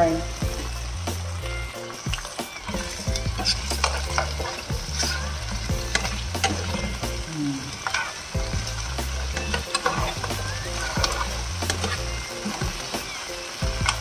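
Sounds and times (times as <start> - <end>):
asparagus sizzling in oil: 0.0 - 14.0
metal tongs scraping pan: 2.7 - 7.1, 7.7 - 8.3, 9.3 - 13.0.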